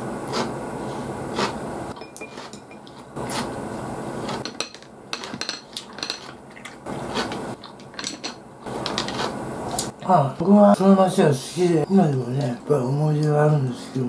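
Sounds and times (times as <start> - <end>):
chopsticks and shells clinking on plates: 4.4 - 6.4, 7.7 - 9.2.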